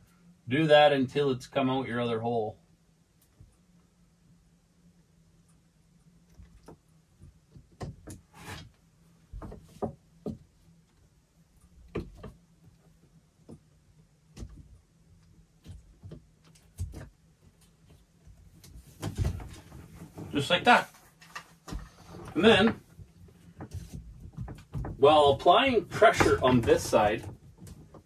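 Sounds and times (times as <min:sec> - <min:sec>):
knocks and taps on wood: 0:09.3 - 0:10.5.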